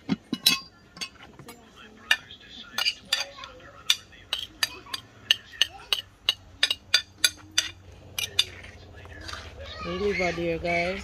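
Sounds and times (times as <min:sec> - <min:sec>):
spoon clinking against metal pot: 0:00.0 - 0:08.6.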